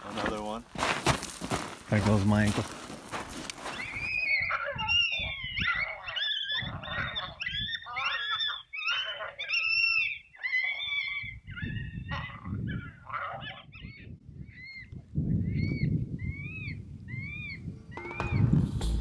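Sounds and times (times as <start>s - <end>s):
coyote yips and howls: 3.7s - 18.5s.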